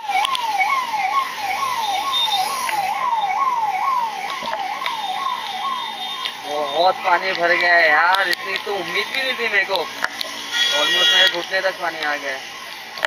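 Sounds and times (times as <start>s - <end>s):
police siren wailing: 0.0s - 13.0s.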